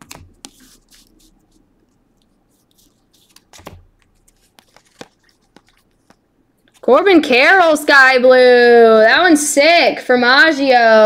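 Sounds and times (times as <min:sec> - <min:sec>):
cards rustling and clicking: 0:00.0 - 0:07.0.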